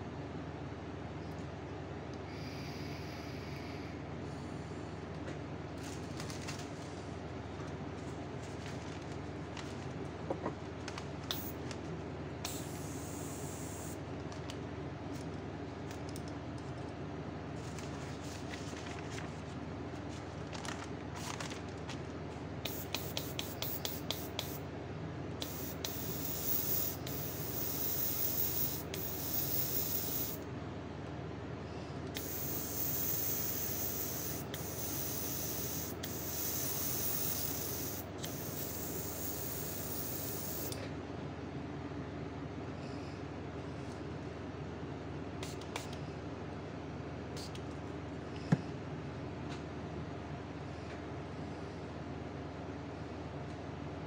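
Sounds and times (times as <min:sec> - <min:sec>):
airbrush spraying hiss: 0:11.3 - 0:11.6, 0:12.4 - 0:14.0, 0:22.7 - 0:24.6, 0:25.4 - 0:30.4, 0:32.2 - 0:40.8.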